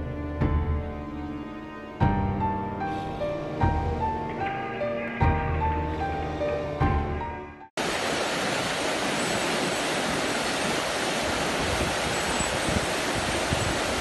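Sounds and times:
background music: 0:00.0 - 0:07.7
whitewater rushing in stream: 0:07.8 - 0:14.0.

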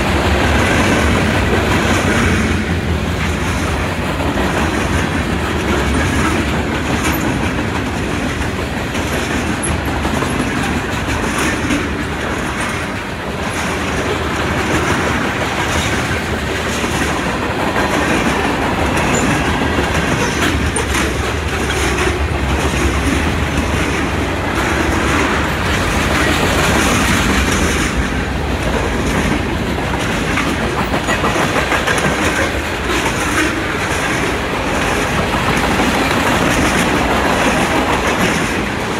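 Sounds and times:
freight train rolling past: 0:00.0 - 0:38.9
wheels clacking over rail joints: 0:00.0 - 0:38.9.

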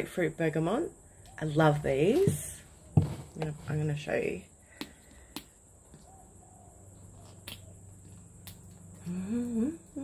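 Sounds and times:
woman humming: 0:09.0 - 0:10.0.

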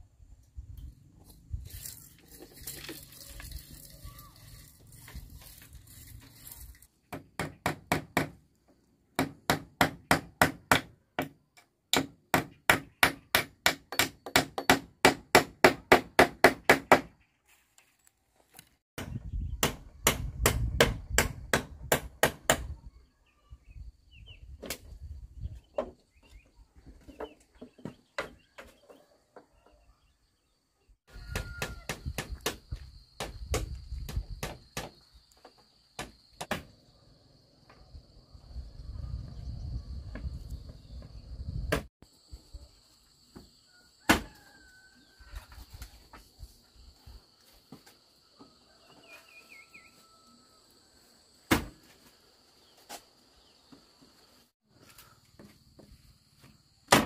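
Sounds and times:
tool striking bamboo: 0:07.1 - 0:08.4, 0:09.2 - 0:17.1.

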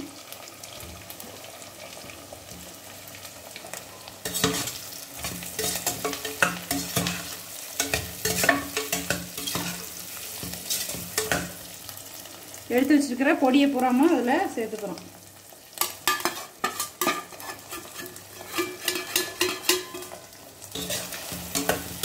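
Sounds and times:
potato sizzling in hot oil: 0:00.0 - 0:22.0
spatula scraping pan: 0:04.2 - 0:11.7, 0:15.8 - 0:22.0.

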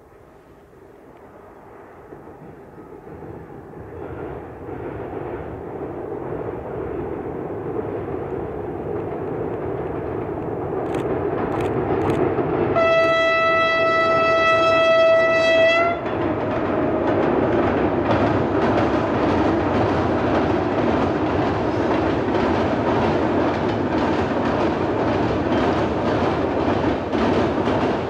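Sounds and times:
diesel locomotive engine: 0:00.0 - 0:28.0
locomotive horn blast: 0:12.8 - 0:16.1.

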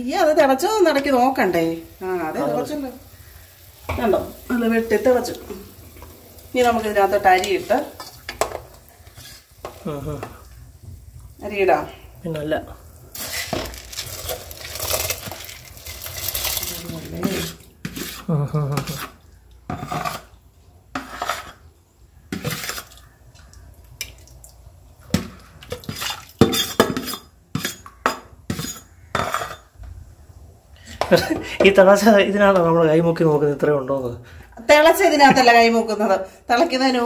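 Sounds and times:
ladle scraping in pot: 0:07.3 - 0:09.8, 0:14.2 - 0:20.3, 0:20.9 - 0:21.6, 0:22.3 - 0:23.0, 0:25.8 - 0:27.9.

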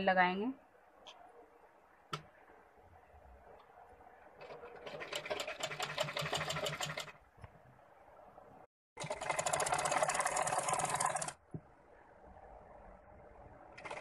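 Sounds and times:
sewing machine stitching: 0:04.3 - 0:07.2, 0:09.0 - 0:11.4, 0:13.7 - 0:14.0.

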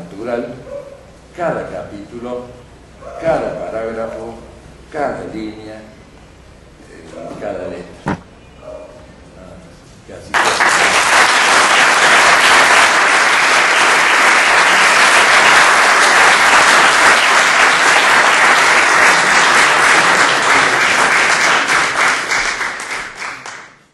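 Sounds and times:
audience applauding: 0:10.3 - 0:23.9.

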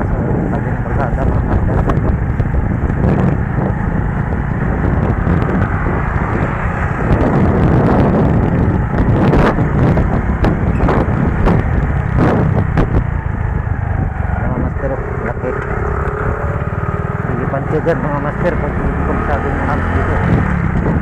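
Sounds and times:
motorcycle engine running: 0:00.0 - 0:21.0
wind rumbling on microphone: 0:00.0 - 0:21.0.

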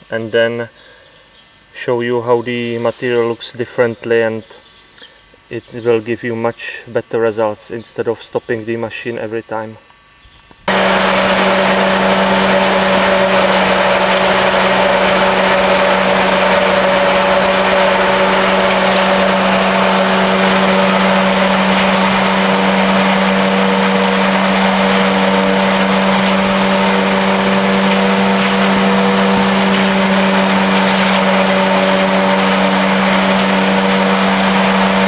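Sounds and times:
shredder running: 0:10.7 - 0:35.0.

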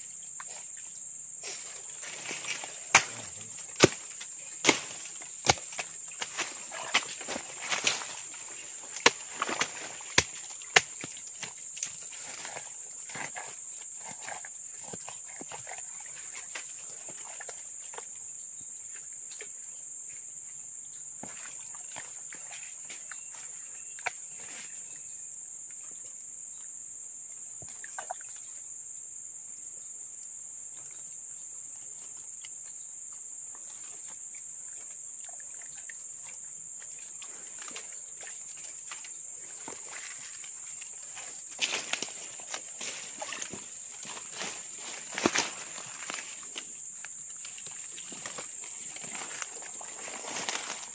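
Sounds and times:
insects chirring: 0:00.0 - 0:50.9
rustling in dry leaves: 0:41.0 - 0:46.6, 0:48.0 - 0:50.9.

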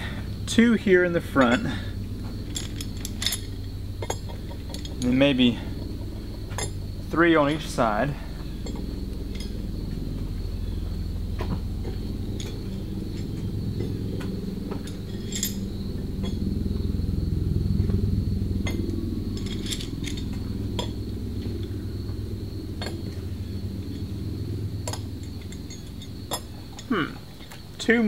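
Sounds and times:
steady low rumble: 0:00.0 - 0:28.0
metal bolts clinking: 0:00.5 - 0:16.6, 0:18.6 - 0:21.8, 0:22.7 - 0:24.2, 0:24.8 - 0:27.9.

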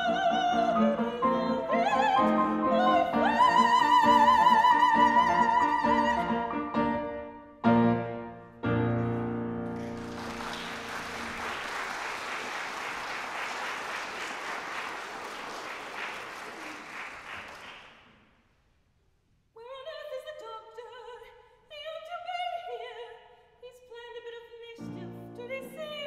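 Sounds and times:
loud piano chords: 0:00.0 - 0:11.4
audience applauding: 0:09.6 - 0:18.1.

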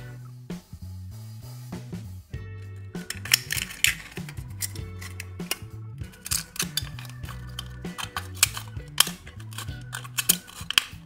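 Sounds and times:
background music: 0:00.0 - 0:11.0
scissors snipping metal can: 0:03.0 - 0:11.0.

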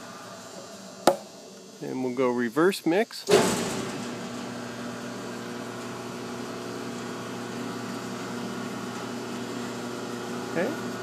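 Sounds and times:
paddle mixer humming: 0:04.0 - 0:11.0.

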